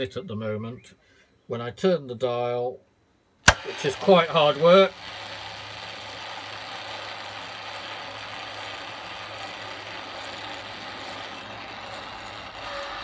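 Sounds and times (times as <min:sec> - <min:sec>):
radio tuning motor running: 0:03.5 - 0:13.0.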